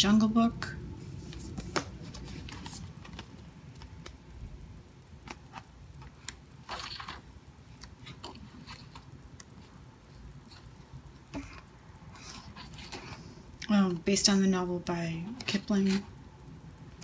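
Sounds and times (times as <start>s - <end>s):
paper pages rustling: 1.1s - 4.2s, 5.2s - 7.3s.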